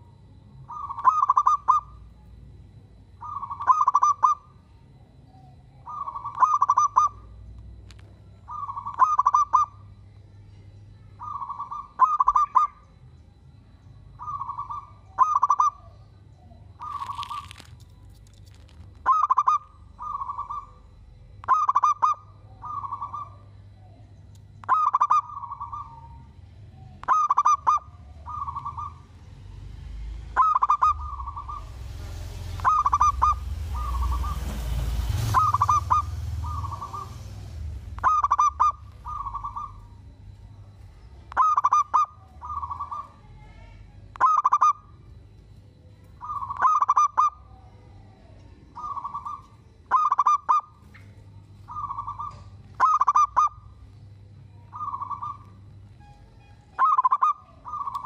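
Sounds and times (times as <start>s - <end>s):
doves cooing: 0.0s - 2.1s, 3.1s - 4.6s, 11.2s - 12.9s, 14.1s - 16.0s, 16.6s - 43.4s, 44.1s - 45.3s, 46.1s - 55.8s, 56.7s - 58.0s
rustling hiss: 31.4s - 37.9s.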